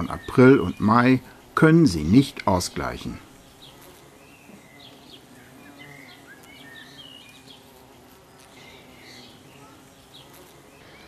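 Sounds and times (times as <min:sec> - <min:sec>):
bees buzzing: 0:00.0 - 0:11.0
bird chirps: 0:03.5 - 0:07.8.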